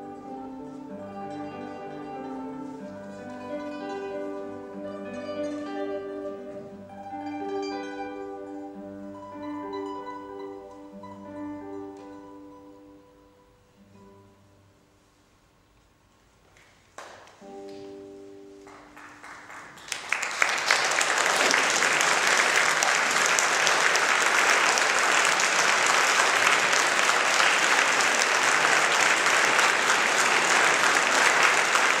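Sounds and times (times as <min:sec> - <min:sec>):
audience applause: 0:18.6 - 0:32.0.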